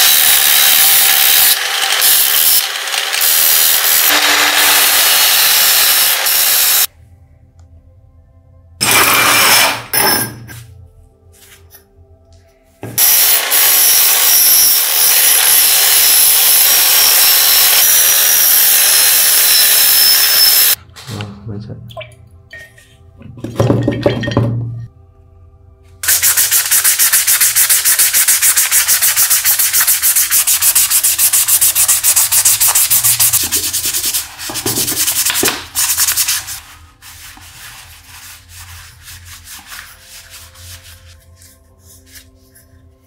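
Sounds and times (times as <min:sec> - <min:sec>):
soft background music: 0:06.8 - 0:15.2, 0:20.8 - 0:29.0, 0:30.6 - 0:43.0
brush scrubbing metal: 0:26.1 - 0:42.6.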